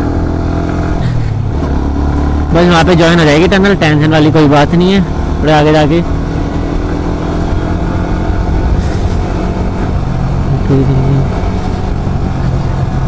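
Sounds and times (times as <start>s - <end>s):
motorcycle engine cruising: 0.0s - 13.0s
road rush: 0.0s - 13.0s.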